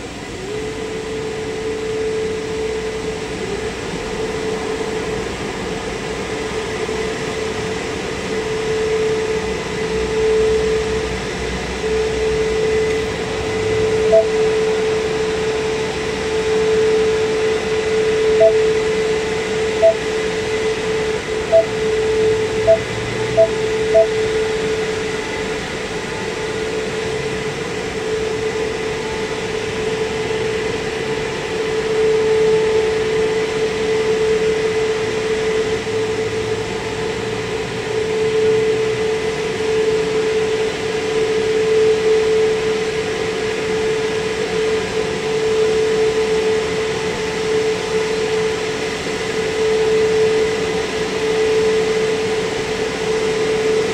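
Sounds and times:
car wash machine humming: 0.0s - 31.8s
short beeps: 13.7s - 14.6s, 18.3s - 18.9s, 19.7s - 20.1s, 21.5s - 24.3s.

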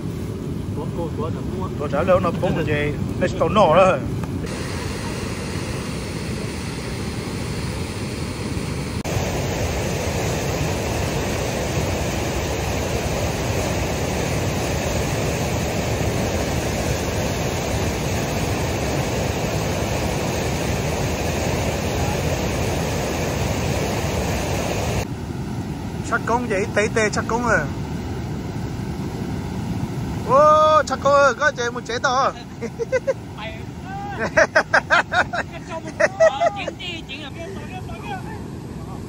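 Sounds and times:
whitewater roaring over dam: 0.0s - 39.0s.

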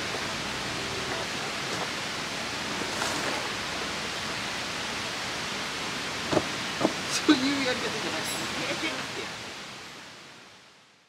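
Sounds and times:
outdoor rushing noise: 0.0s - 7.2s.

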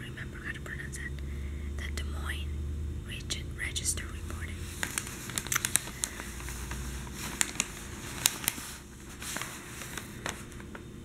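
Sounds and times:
newspaper page turning: 4.6s - 10.9s.

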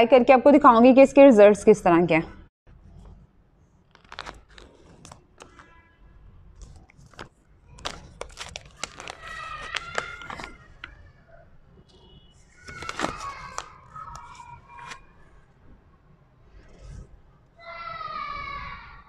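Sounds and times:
paper sachet crinkling and tearing: 3.9s - 5.7s, 6.6s - 11.0s, 12.6s - 15.1s.

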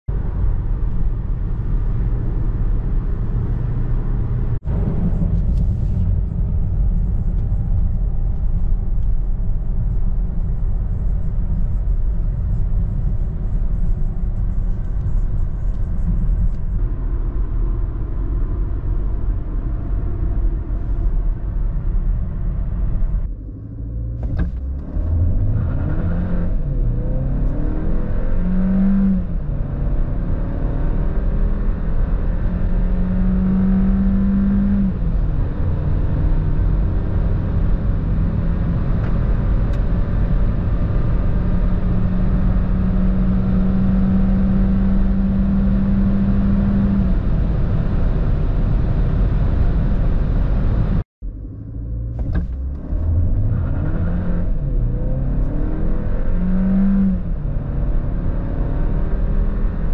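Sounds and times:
road and tyre rumble: 0.0s - 59.9s
car engine revving hard: 24.2s - 49.8s, 52.2s - 59.9s.

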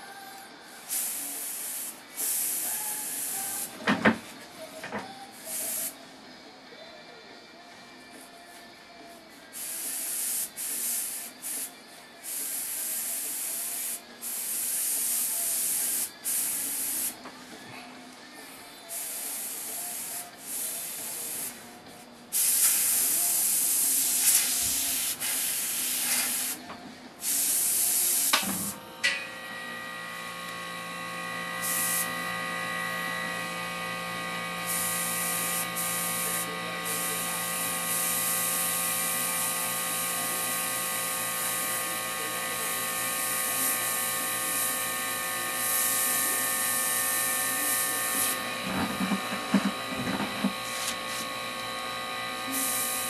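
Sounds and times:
airbrush spraying hiss: 0.7s - 3.8s, 5.3s - 6.0s, 9.5s - 17.2s, 18.9s - 21.7s, 22.3s - 26.6s, 27.2s - 28.8s, 31.6s - 32.2s, 34.6s - 44.9s, 45.6s - 51.3s, 52.5s - 53.0s
small motor humming: 28.7s - 53.0s.

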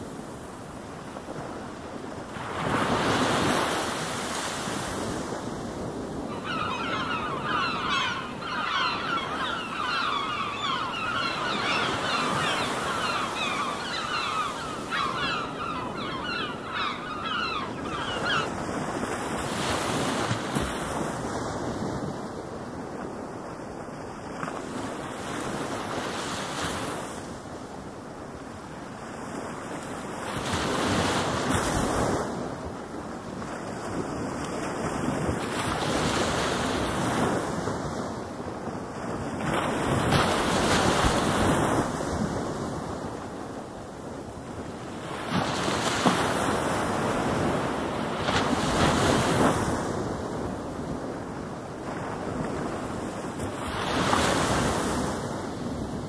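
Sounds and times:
ocean waves washing: 0.0s - 22.7s
flock of birds calling: 6.2s - 18.7s.

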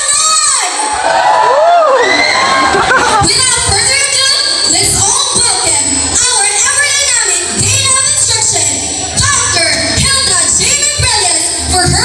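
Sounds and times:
woman singing: 3.2s - 12.0s.

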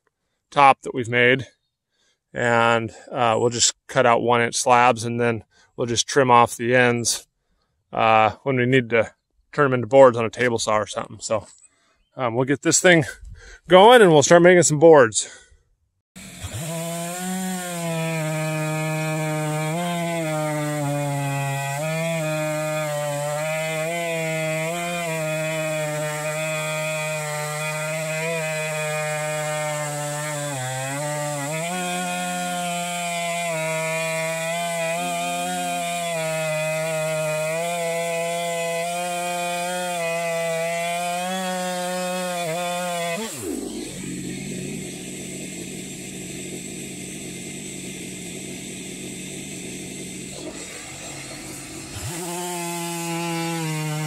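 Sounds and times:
chainsaw cutting wood: 16.2s - 54.0s.

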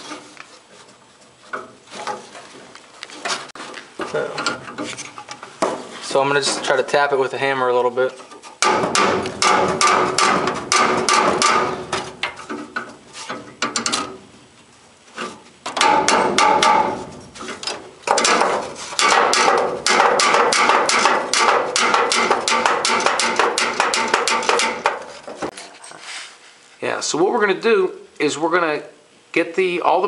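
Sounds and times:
hammer tapping on steel: 18.1s - 25.1s.

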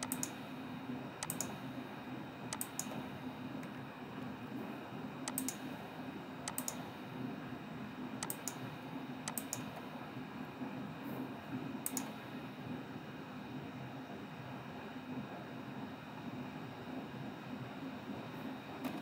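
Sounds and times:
computer mouse double clicks: 0.0s - 0.4s, 1.2s - 1.6s, 2.5s - 3.0s, 5.3s - 5.6s, 6.5s - 6.8s, 8.2s - 8.6s, 9.3s - 9.7s, 11.9s - 12.1s
steady low hum: 0.0s - 19.0s.

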